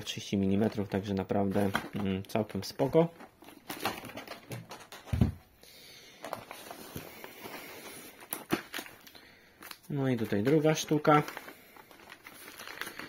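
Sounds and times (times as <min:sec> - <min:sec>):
foam packing peanuts rustling: 0:06.1 - 0:09.1, 0:10.0 - 0:13.0
foil crinkling: 0:06.2 - 0:13.0.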